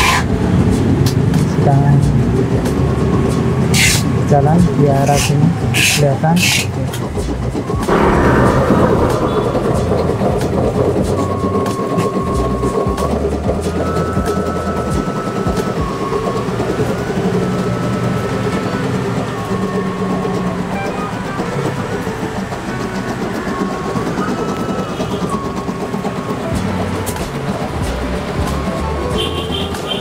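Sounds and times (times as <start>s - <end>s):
machine whine shifting pitch: 7.8s - 22.5s.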